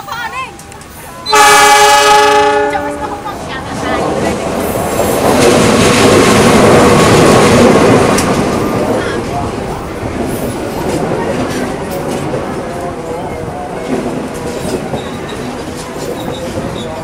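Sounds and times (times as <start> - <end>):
train rumbling past: 0.0 - 17.0
locomotive horn blast: 1.2 - 3.3
wheels rattling over rails: 2.6 - 17.0.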